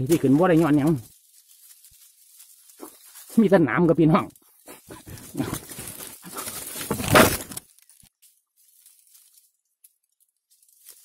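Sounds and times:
leafy branches rustling: 0.0 - 11.0.

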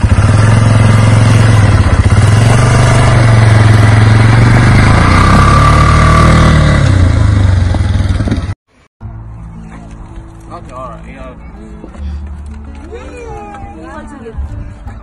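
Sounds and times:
engine running and revving: 0.0 - 8.6.

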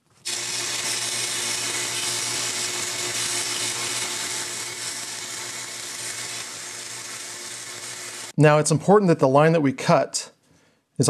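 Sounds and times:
plastic sanding on belt: 0.1 - 8.3
belt sander motor hum: 0.2 - 8.4.

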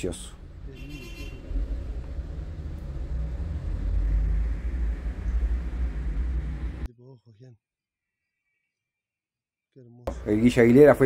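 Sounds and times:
steady low rumble: 0.0 - 6.9.

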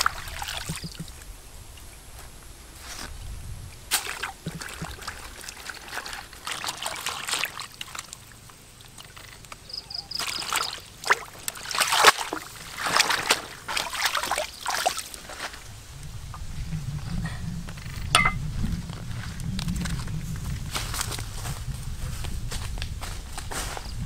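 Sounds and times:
river water splashing: 0.0 - 1.2, 3.9 - 15.8.

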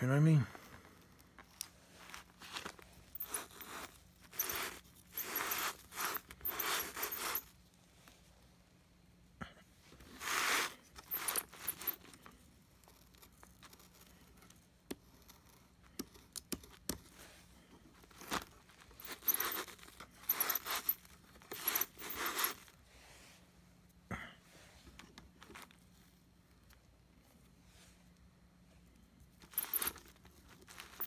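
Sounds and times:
hand scraping hair off vacuum brush: 1.9 - 7.5, 10.0 - 12.1.

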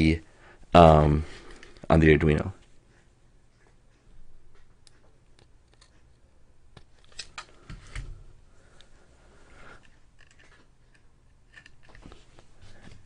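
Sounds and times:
wires clicking into breadboard: 4.6 - 8.1.

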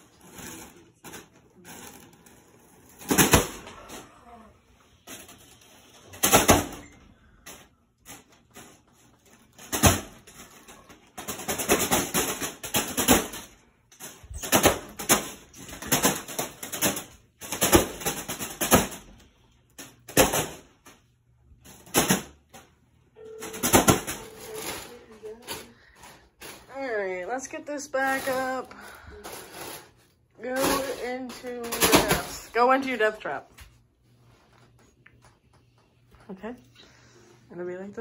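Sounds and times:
fan blades slapping foil balloon: 0.0 - 4.4, 5.0 - 21.1.

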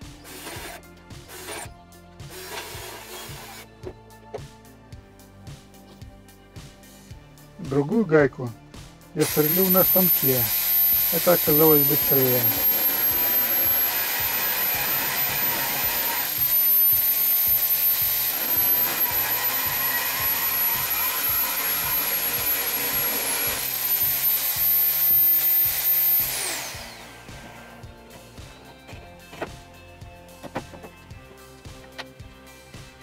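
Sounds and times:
drill bit grinding metal: 0.0 - 3.7, 9.2 - 29.1
drill press motor whining: 0.0 - 3.7, 9.2 - 29.1
motor winding down: 2.3 - 3.7, 9.2 - 27.9.

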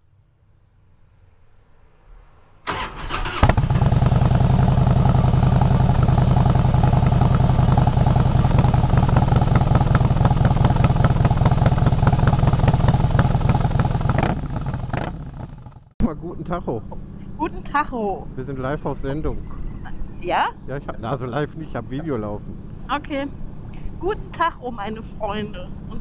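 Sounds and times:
motorcycle engine running: 2.7 - 15.9.

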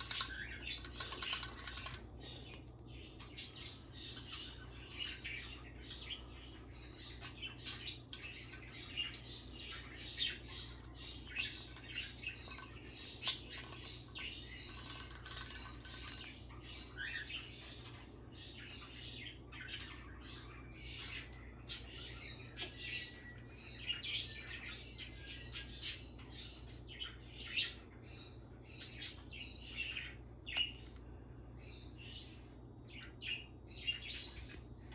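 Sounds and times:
beak tapping on can tabs: 0.0 - 3.5, 10.2 - 16.4
low steady hum: 0.0 - 34.9.

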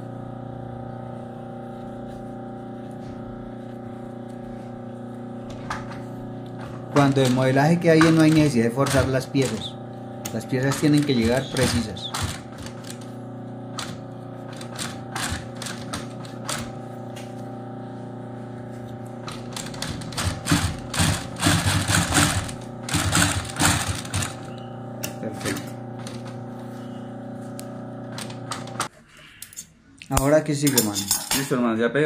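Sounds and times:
sewing machine motor humming: 0.0 - 28.9
sewing needle rapid clicking: 6.9 - 13.0, 19.3 - 24.4.

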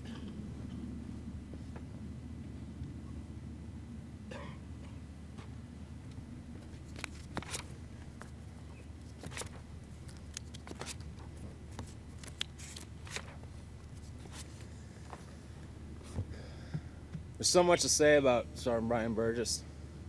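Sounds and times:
steady low hum: 0.0 - 20.0
paper sheets rustling: 6.7 - 7.7, 9.0 - 14.7.

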